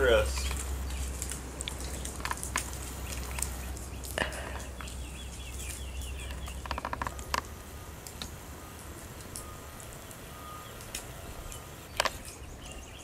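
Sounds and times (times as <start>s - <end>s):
sharp clicks and scratches: 5.6s - 8.3s.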